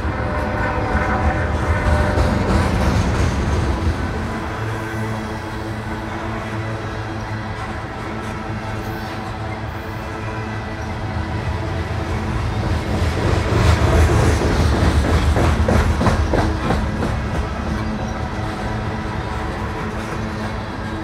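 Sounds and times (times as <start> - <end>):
train rumbling: 0.0 - 21.0
train wheels clicking over rail joints: 0.2 - 5.9, 12.1 - 21.0.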